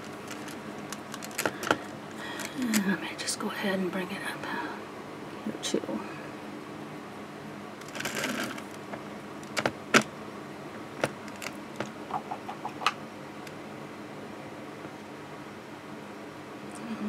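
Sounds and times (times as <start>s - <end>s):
sharp clicks and taps: 11.8s - 13.0s.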